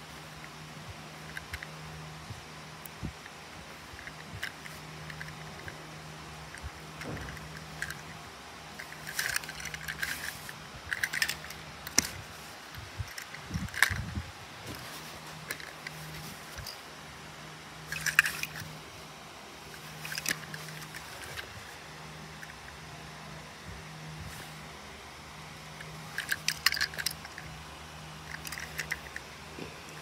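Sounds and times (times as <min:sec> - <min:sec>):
steady low hum: 0:00.0 - 0:30.0
toy cars clicking and tapping: 0:01.2 - 0:01.7, 0:03.9 - 0:05.8, 0:06.4 - 0:08.2, 0:08.8 - 0:14.1, 0:15.4 - 0:16.8, 0:17.9 - 0:18.7, 0:19.8 - 0:21.5, 0:25.8 - 0:27.5, 0:28.2 - 0:29.3.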